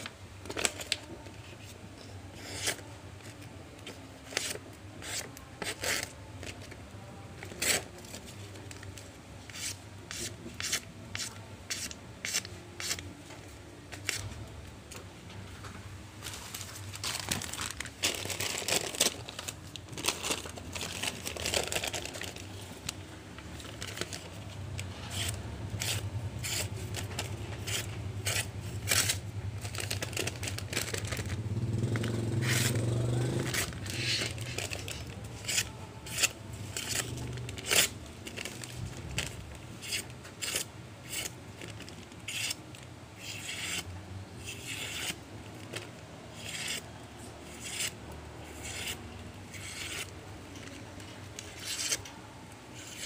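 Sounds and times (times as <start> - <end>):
paper rustling: 16.2 - 22.9
knife cutting paper: 23.7 - 31.4, 32.0 - 42.6, 43.2 - 45.2, 46.4 - 46.8, 47.4 - 50.8, 51.4 - 52.1, 52.8 - 53.0.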